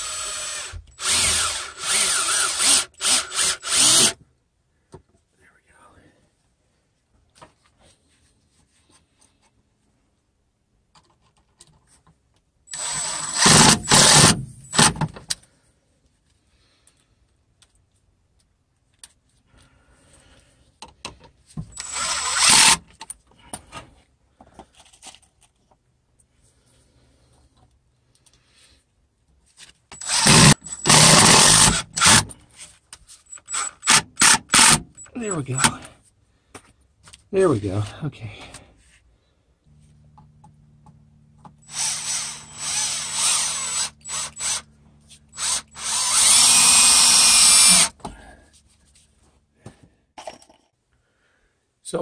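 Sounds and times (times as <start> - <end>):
cordless drill driving screws: 0.0 - 4.2, 12.7 - 15.1, 21.7 - 22.8, 29.9 - 32.4, 33.3 - 35.8, 41.6 - 44.7, 45.3 - 48.0.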